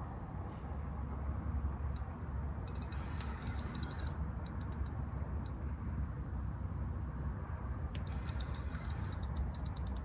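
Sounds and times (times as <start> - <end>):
steady low rumble: 0.0 - 10.0
fishing reel clicking: 2.0 - 5.6, 8.0 - 10.0.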